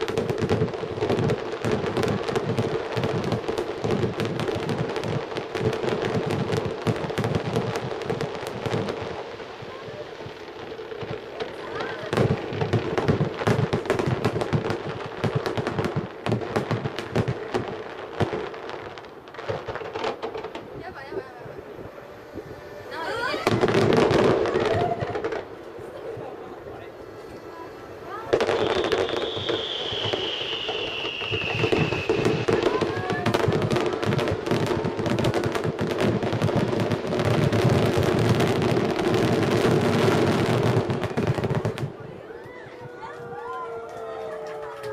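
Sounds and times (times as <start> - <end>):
fireworks bangs and crackles: 0.0 - 44.9
firework shells bursting: 28.2 - 39.1.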